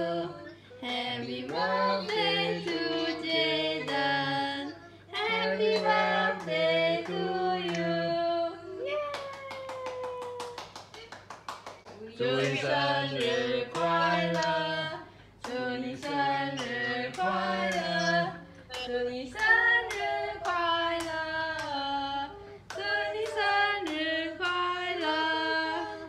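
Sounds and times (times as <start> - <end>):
group of voices singing together: 0.0 - 8.8, 12.0 - 26.0
hand claps: 9.0 - 12.6, 15.4 - 17.9, 18.7 - 21.8.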